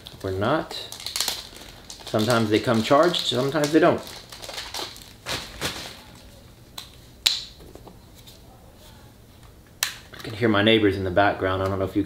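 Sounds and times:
plastic rustling: 0.0s - 7.1s.

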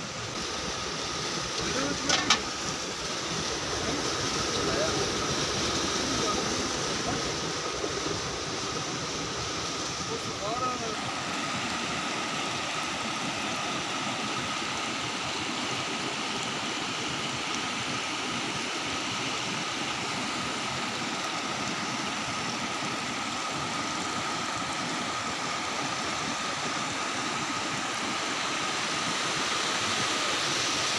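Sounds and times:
stream rushing over stones: 0.0s - 30.9s.

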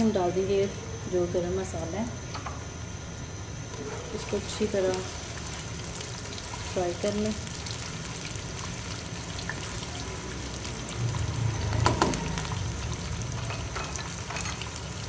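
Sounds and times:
onions sizzling in hot oil: 3.1s - 15.0s.

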